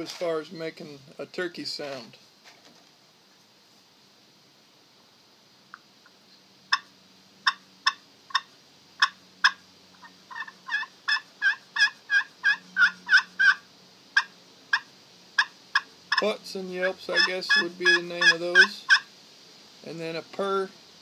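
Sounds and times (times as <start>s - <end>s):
turkey call sharp notes: 6.7s - 13.6s, 14.2s - 19.1s
turkey call yelps: 6.7s - 13.6s, 17.1s - 19.1s.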